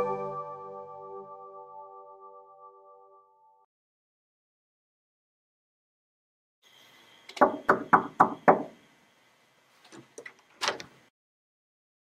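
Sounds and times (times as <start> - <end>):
knuckles knocking on wooden door: 7.4 - 8.7.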